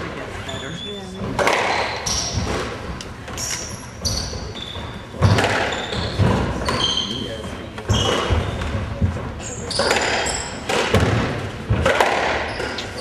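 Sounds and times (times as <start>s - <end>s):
shoes squeaking on wooden floor: 0.4s - 10.7s, 12.4s - 13.0s
squash ball strikes: 1.2s - 13.0s.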